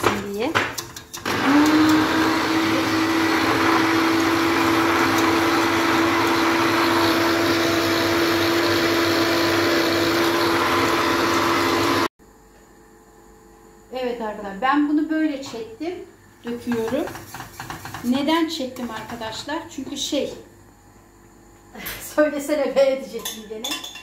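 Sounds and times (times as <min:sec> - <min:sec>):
electric hand blender running: 0:01.2 - 0:12.1.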